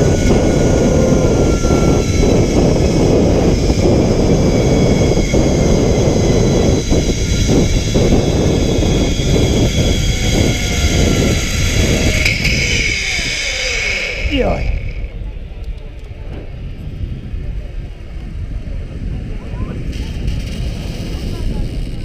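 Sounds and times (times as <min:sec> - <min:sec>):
zipline pulleys whining on cable: 0:00.0 - 0:16.9, 0:17.5 - 0:22.0
wind rushing on microphone: 0:00.0 - 0:22.0.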